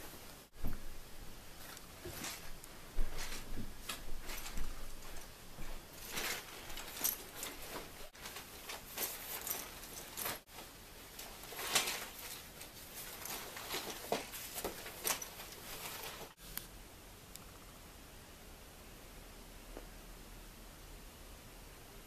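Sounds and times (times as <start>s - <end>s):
fabric backpack rustling: 1.5s - 16.4s.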